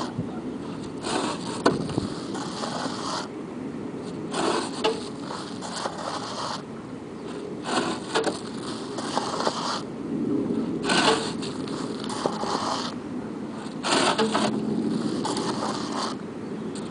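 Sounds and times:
bricks scraping: 0.0s - 3.3s, 4.3s - 6.6s, 7.3s - 9.8s, 10.8s - 13.0s, 13.6s - 16.2s.

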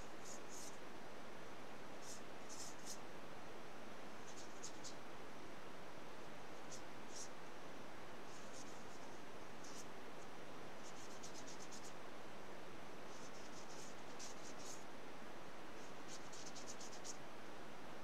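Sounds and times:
paintbrush strokes on paper: 0.0s - 0.8s, 2.0s - 3.0s, 4.2s - 5.0s, 6.6s - 7.4s, 8.3s - 12.0s, 13.1s - 14.9s, 15.8s - 17.2s
steady background hiss: 0.0s - 18.0s.

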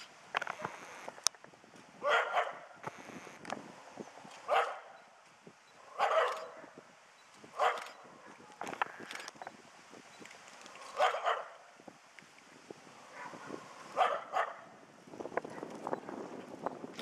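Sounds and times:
small dog barking: 2.0s - 2.7s, 4.5s - 5.0s, 5.9s - 6.8s, 7.6s - 8.4s, 11.0s - 11.6s, 13.1s - 14.7s.

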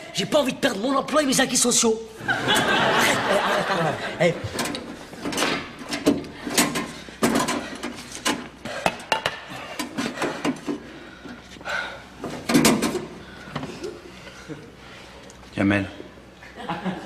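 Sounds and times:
hard objects knocking and clattering: 4.5s - 10.8s.

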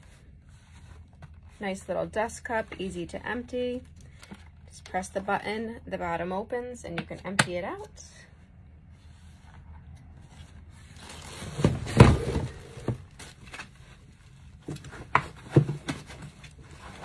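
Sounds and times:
plastic wrap rustling: 10.2s - 14.6s.

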